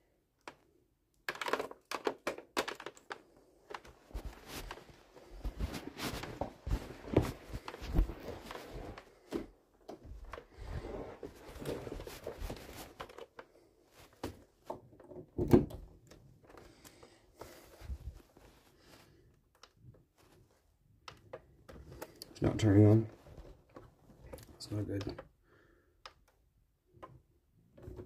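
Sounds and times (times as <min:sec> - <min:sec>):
handling knocks and clicks: 0:00.4 - 0:10.6, 0:19.4 - 0:25.3
rustling: 0:03.0 - 0:14.7, 0:16.5 - 0:19.3.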